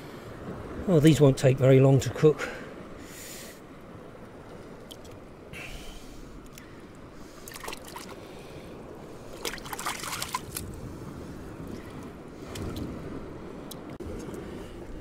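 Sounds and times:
water splashing and trickling: 6.5 - 12.9.

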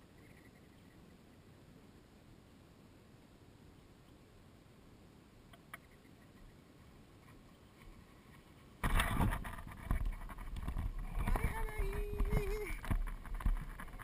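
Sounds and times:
faint click: 5.5 - 6.6.

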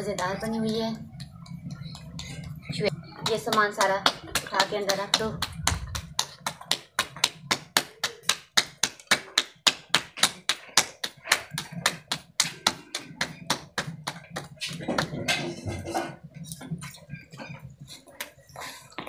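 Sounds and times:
hands slapping dough: 3.2 - 15.3.

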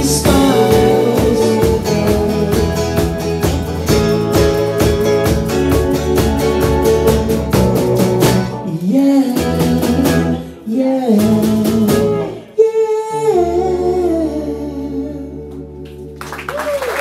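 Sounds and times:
person singing: 0.0 - 5.2, 8.6 - 15.9
strummed acoustic guitar: 0.0 - 8.7
drums: 0.0 - 12.4
bass: 0.0 - 17.0.

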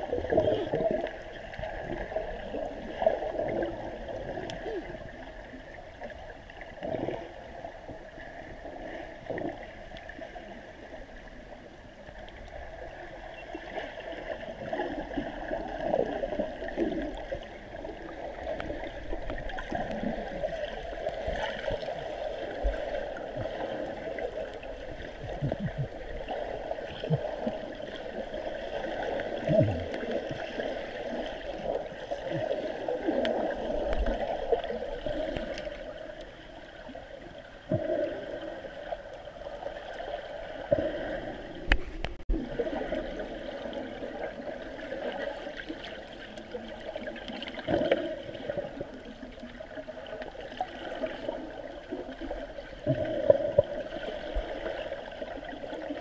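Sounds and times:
water gurgling and sloshing: 0.0 - 56.0.

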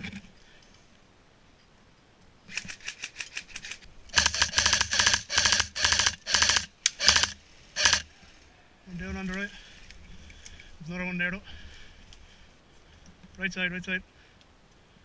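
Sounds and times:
airsoft rifle firing: 4.1 - 8.0.

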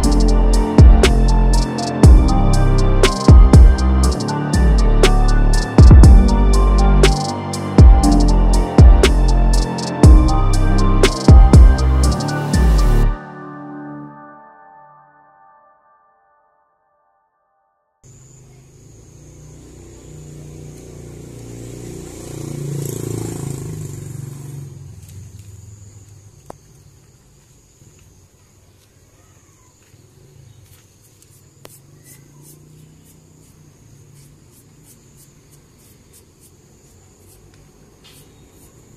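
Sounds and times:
motor vehicle passing: 18.8 - 26.3, 31.8 - 38.9.

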